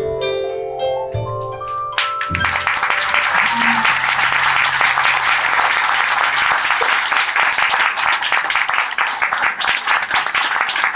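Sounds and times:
audience applauding: 2.0 - 10.9
low held note: 2.3 - 7.0.

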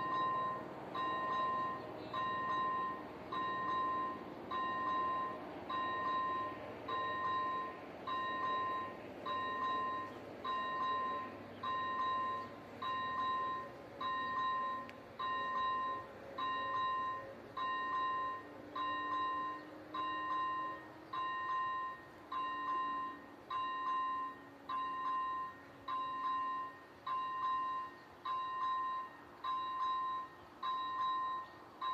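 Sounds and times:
level-crossing warning bell: 0.0 - 31.9.

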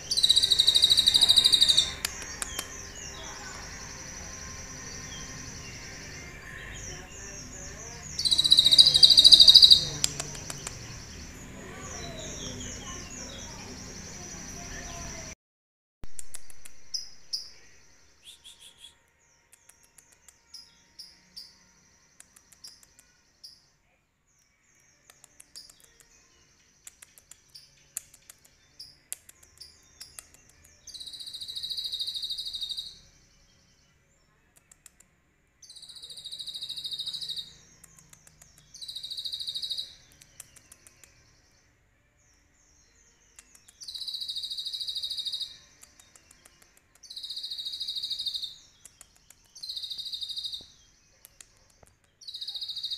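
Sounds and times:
bird high trills: 0.0 - 2.0, 8.2 - 9.9
bird singing high chirps: 0.0 - 15.3, 16.6 - 23.7, 24.5 - 33.9, 35.6 - 41.7, 42.3 - 52.9.

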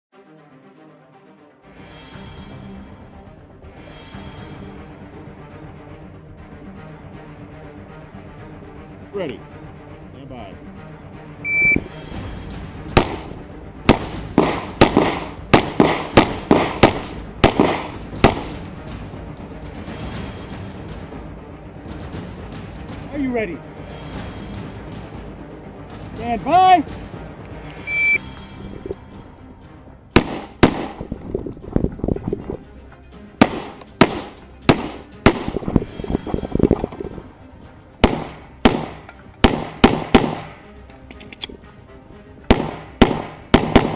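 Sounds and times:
pistol shots: 12.9 - 18.6, 30.2 - 31.1, 33.4 - 35.6, 38.0 - 40.6, 42.5 - 43.9.

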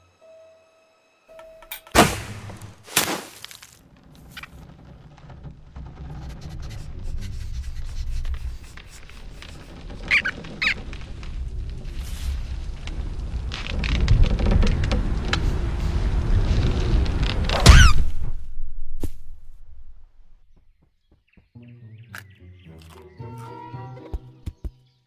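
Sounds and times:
sharp loud crack: 1.9 - 3.4, 17.5 - 18.5
low rumble: 3.8 - 20.6
short high squeaks: 6.2 - 11.1.

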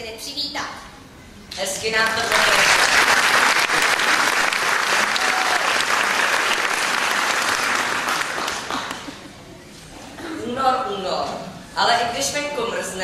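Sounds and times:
audience applause: 2.2 - 9.3.

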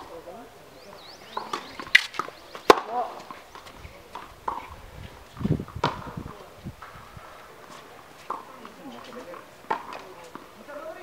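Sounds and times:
racket striking ball: 1.4 - 4.7, 5.6 - 6.2, 9.7 - 10.4.

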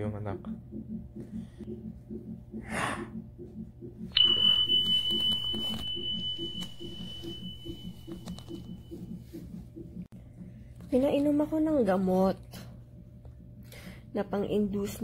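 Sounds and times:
fetal heartbeat on monitor: 0.0 - 11.8
steady high electronic beep: 4.1 - 9.2.

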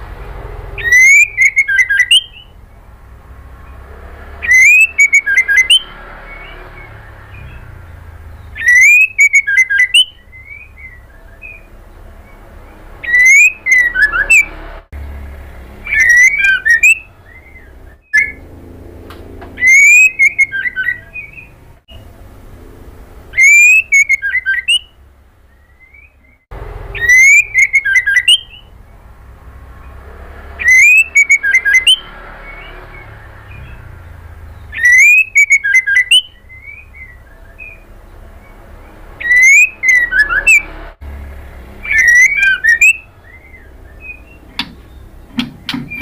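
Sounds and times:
bird whistling calls: 0.7 - 2.6, 4.4 - 12.4, 13.0 - 14.5, 15.8 - 18.4, 19.6 - 21.6, 23.3 - 28.8, 30.6 - 40.7, 41.8 - 46.0
low steady hum: 14.4 - 30.4.

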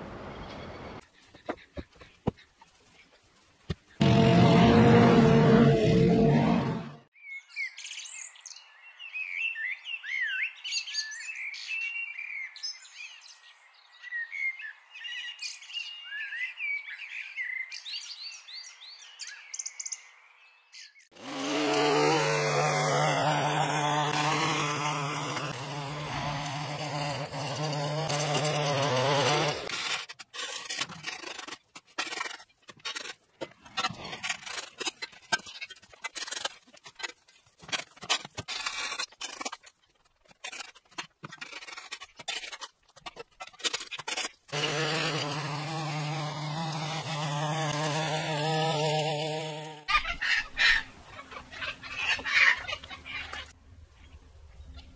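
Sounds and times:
loud steady drone: 4.0 - 7.0
rake scraping leaves on concrete: 21.2 - 49.9
small birds chirping: 49.6 - 54.9.

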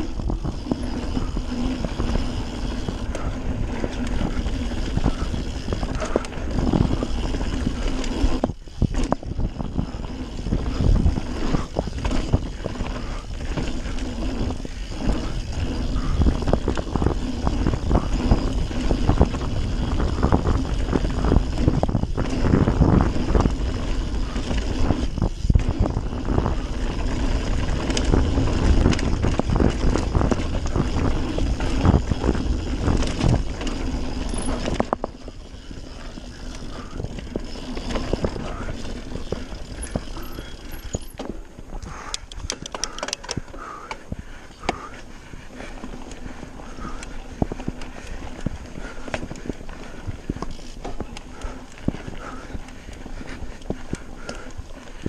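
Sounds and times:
wind on microphone: 0.0 - 41.0
bike knocking and rattling: 0.0 - 55.0
bike tyres rolling over dirt: 0.0 - 55.0.

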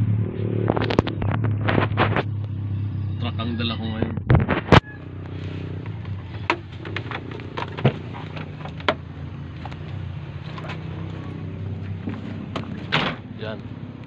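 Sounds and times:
truck engine idling: 5.0 - 14.0
sharp clicks and knocks: 5.8 - 10.9.

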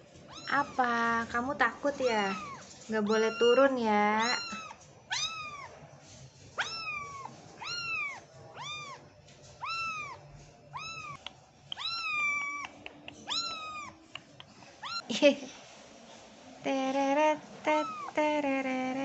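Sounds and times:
kitten meowing: 0.3 - 0.9, 2.0 - 5.7, 6.6 - 9.0, 9.6 - 15.0.

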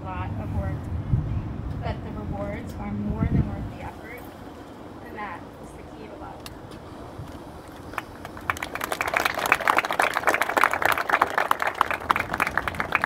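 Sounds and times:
audience clapping: 7.7 - 13.0.

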